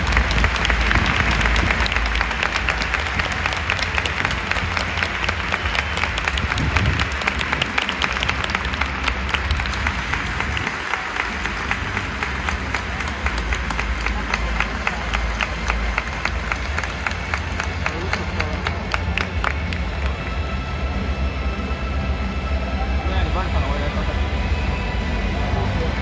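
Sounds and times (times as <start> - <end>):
low rumble: 0.0 - 18.1
crowd applauding: 0.0 - 20.6.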